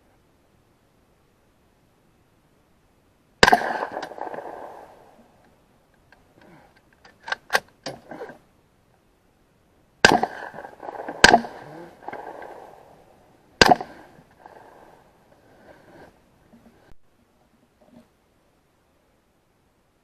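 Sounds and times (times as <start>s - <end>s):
gunshots echoing: 3.4s - 5.2s, 10.0s - 13.0s, 13.6s - 15.0s.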